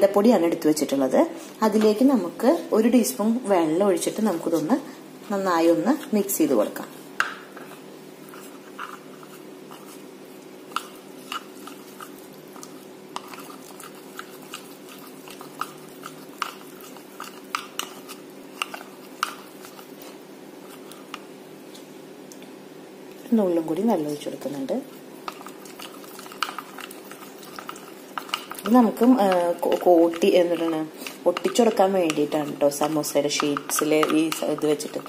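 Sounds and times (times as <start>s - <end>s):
spoon tapping plastic bowl: 28.2s - 35.0s.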